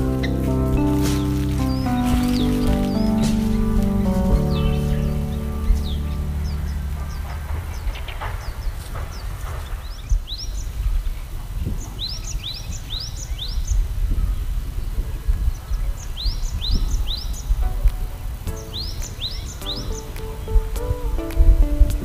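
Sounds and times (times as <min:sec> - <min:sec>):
steady low rumble: 0:00.0 - 0:10.4
small birds chirping: 0:00.0 - 0:22.0.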